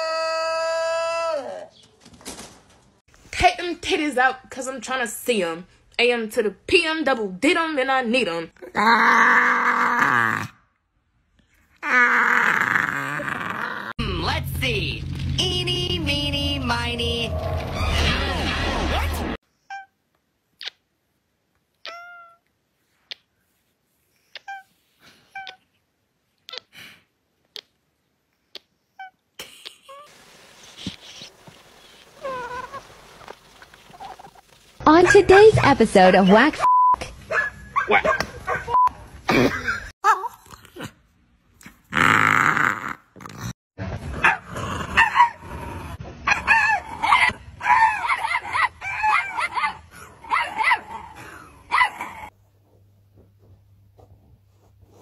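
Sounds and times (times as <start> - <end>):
kissing smacks: 20.6 - 20.9, 21.8 - 22.2, 23.0 - 23.3, 24.3 - 24.7, 25.3 - 25.7, 26.4 - 27.8, 28.4 - 29.9
cat meowing: 21.8 - 22.4
puppy yipping and yelping: 46.3 - 51.0.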